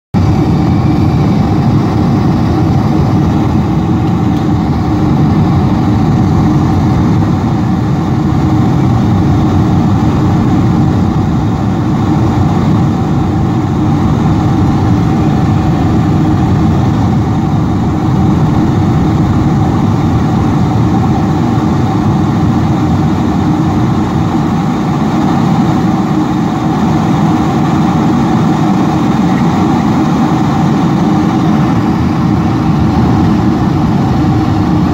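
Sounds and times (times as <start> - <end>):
airplane cabin engine noise: 0.1 - 34.9.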